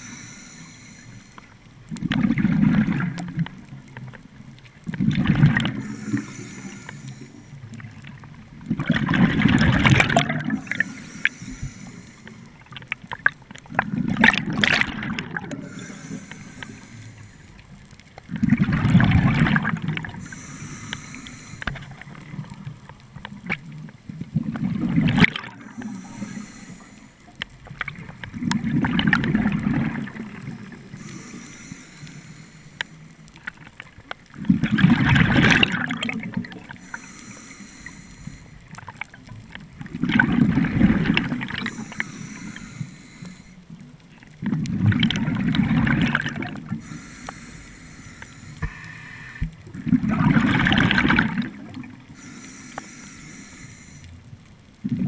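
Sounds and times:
air hissing through regulator: 0.0s - 1.5s, 5.8s - 7.5s, 10.6s - 12.4s, 15.6s - 17.6s, 20.2s - 21.8s, 25.6s - 27.2s, 30.9s - 33.1s, 36.8s - 38.6s, 41.6s - 43.6s, 46.8s - 49.5s, 52.2s - 54.1s
regulator bubbles gurgling underwater: 0.0s - 55.0s.

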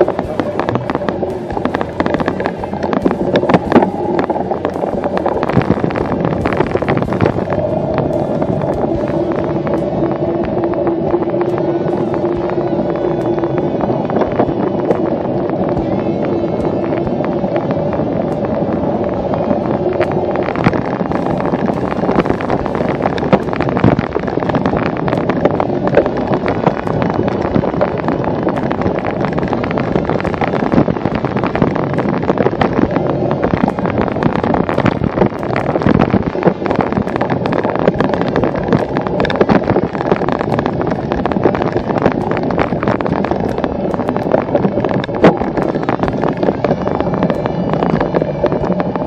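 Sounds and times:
wind on microphone: 0.0s - 49.0s.

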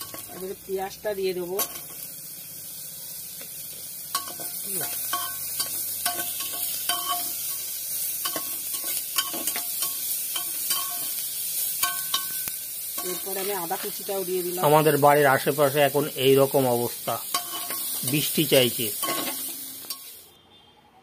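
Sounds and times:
onions sizzling in butter: 0.0s - 20.3s
metal spatula scraping a pot: 4.1s - 11.2s, 17.3s - 18.3s, 18.9s - 20.2s.

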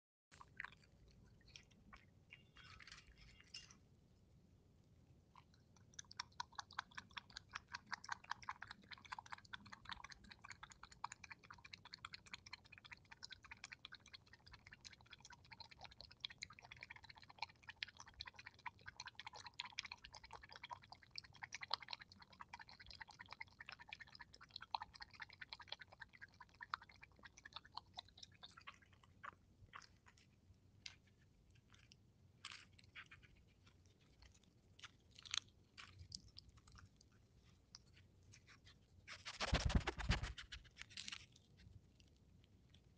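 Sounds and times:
animal lapping water from metal bowl: 5.4s - 32.0s.

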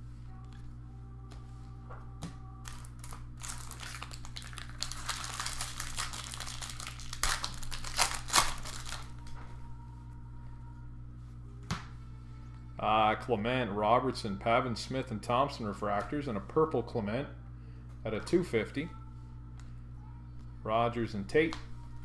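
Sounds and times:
wrapper tearing and crinkling: 2.6s - 9.2s.

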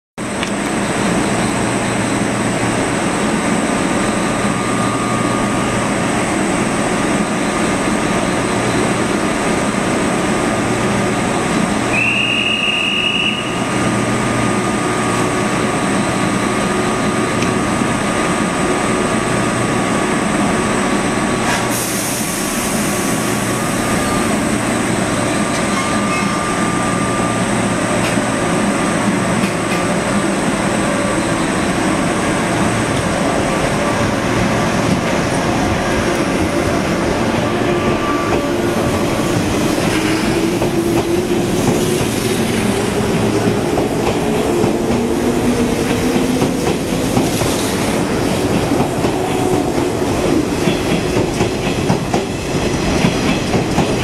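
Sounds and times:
train equipment humming: 0.2s - 54.0s
high whistle-like tone: 11.9s - 13.7s
air hissing: 21.5s - 23.6s.

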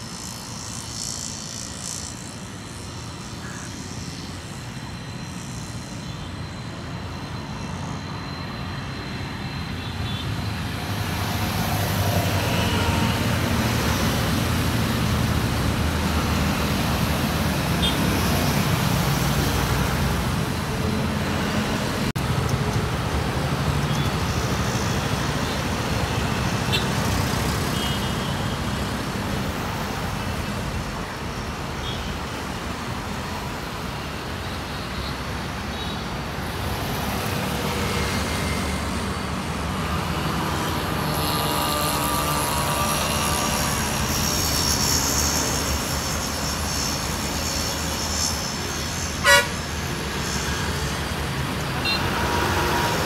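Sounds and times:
high whine: 0.0s - 32.1s
road traffic passing close by: 0.0s - 53.0s
vehicle horn toot: 49.2s - 49.6s.

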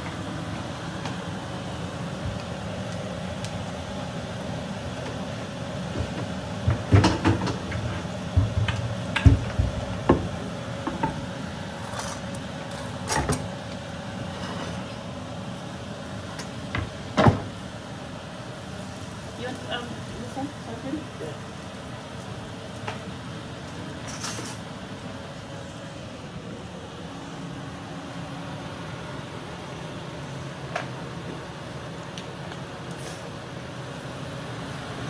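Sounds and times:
steady background hum: 0.0s - 35.0s
board and utensils knocking on stone: 6.0s - 10.3s.

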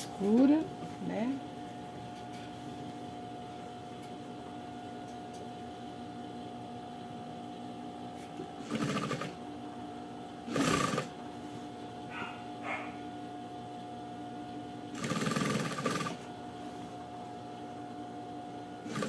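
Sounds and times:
steady low hum: 0.0s - 19.0s
sewing machine stitching: 8.6s - 9.4s, 10.5s - 11.1s, 15.0s - 16.2s.

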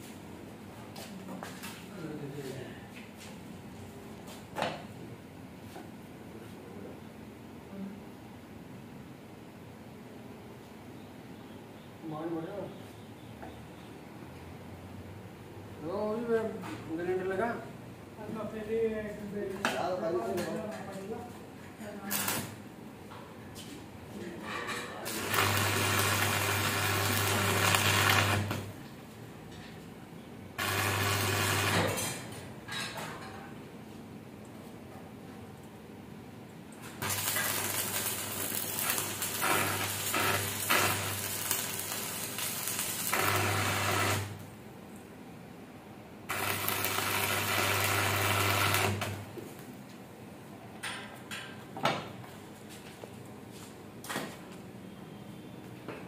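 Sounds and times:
metalworking machine buzzing hum: 25.1s - 28.7s, 30.6s - 32.2s, 37.0s - 44.4s, 46.3s - 49.2s.

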